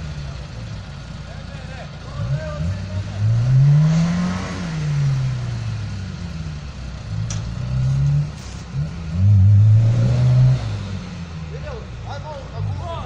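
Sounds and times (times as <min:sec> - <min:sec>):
engine revving: 0:02.0 - 0:13.0.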